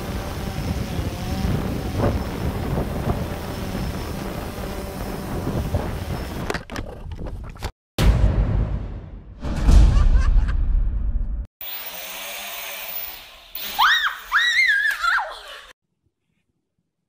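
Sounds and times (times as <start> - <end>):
drone propellers running: 0.0 - 6.6
wind rushing on microphone: 0.0 - 6.6.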